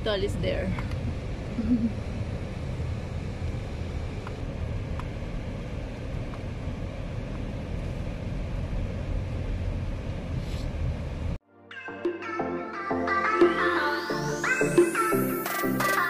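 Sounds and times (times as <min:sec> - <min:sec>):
car road and engine noise: 0:00.0 - 0:11.4.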